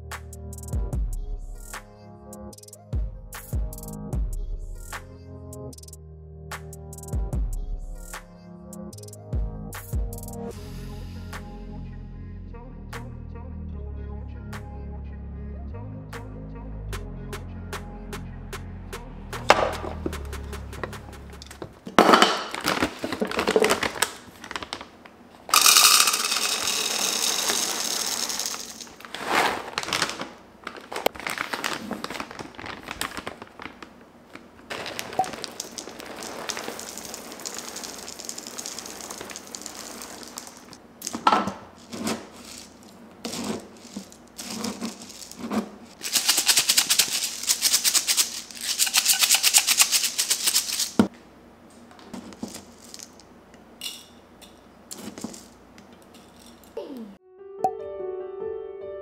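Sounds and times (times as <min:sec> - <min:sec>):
background music: 0:00.0 - 0:21.8
kibble pouring into plastic container: 0:25.5 - 0:33.4, 0:34.7 - 0:41.2, 0:41.8 - 0:51.0, 0:52.4 - 0:53.2, 0:54.9 - 0:55.5
bag rustling: 0:27.4 - 0:47.4.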